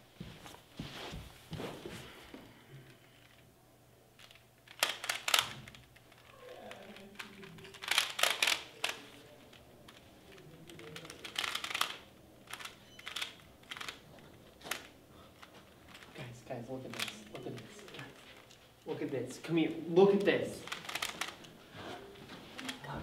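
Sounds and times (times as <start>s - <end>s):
plastic puzzle cube clicking: 4.2s - 14.0s, 14.6s - 16.1s, 16.9s - 18.6s, 20.2s - 21.5s.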